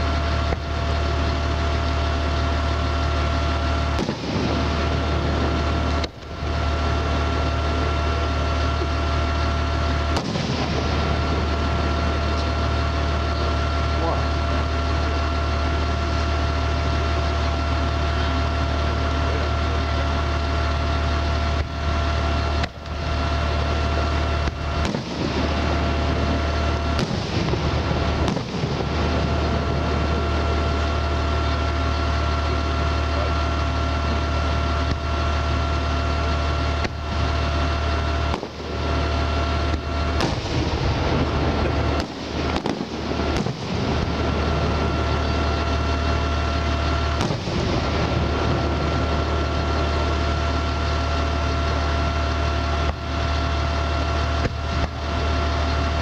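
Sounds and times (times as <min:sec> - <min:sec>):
low engine drone with whine: 0:00.0 - 0:56.0
fireworks bursting: 0:02.8 - 0:13.8, 0:22.6 - 0:32.7, 0:35.9 - 0:56.0.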